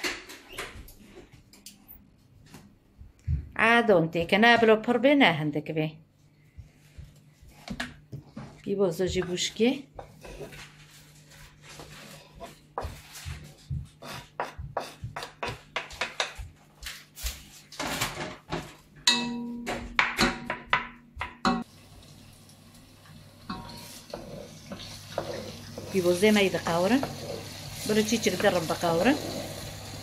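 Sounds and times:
wooden spoon knocking on pot: 0:14.4 - 0:16.5, 0:19.1 - 0:21.6
onion sizzling in oil: 0:21.6 - 0:30.0.

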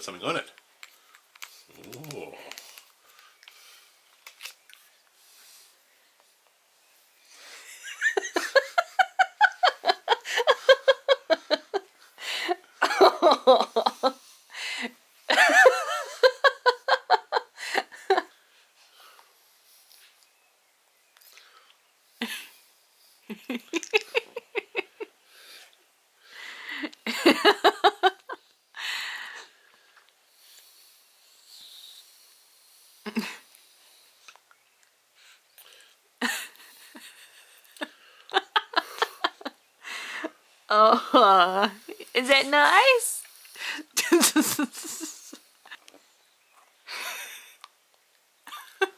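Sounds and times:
breathy hiss: 0:00.8 - 0:08.6, 0:09.6 - 0:12.8, 0:13.7 - 0:20.2, 0:21.3 - 0:28.1, 0:28.7 - 0:34.3, 0:35.1 - 0:45.7
short vocal sounds: 0:01.7 - 0:02.8
person laughing: 0:07.8 - 0:11.8, 0:12.8 - 0:14.1, 0:23.3 - 0:25.1, 0:44.0 - 0:45.8.

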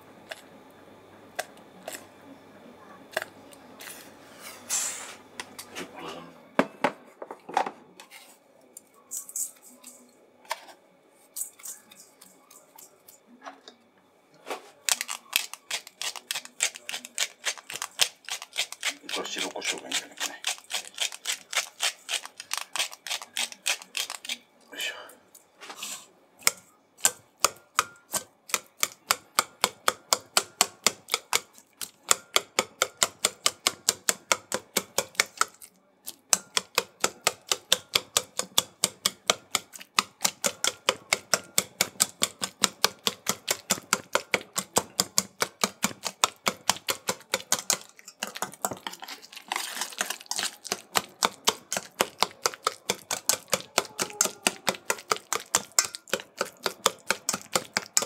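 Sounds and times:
whisk clicking against metal bowl: 0:15.0 - 0:24.4, 0:26.4 - 0:35.7, 0:36.3 - 0:58.0.

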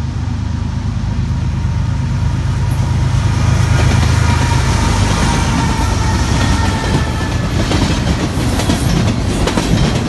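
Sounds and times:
diesel locomotive engine drone: 0:00.0 - 0:10.0
wheel-on-rail noise: 0:00.8 - 0:10.0.

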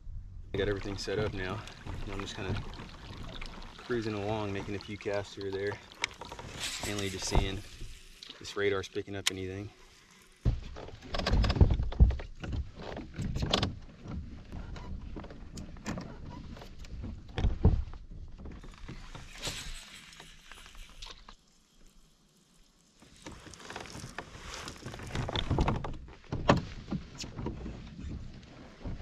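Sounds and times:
knocks and thumps on kayak: 0:10.4 - 0:19.2, 0:25.0 - 0:29.0.

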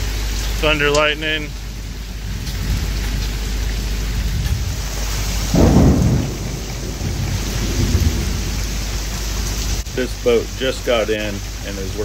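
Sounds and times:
rain: 0:00.0 - 0:12.0
gusting wind: 0:01.2 - 0:10.1
thunder clap: 0:01.8 - 0:09.8.

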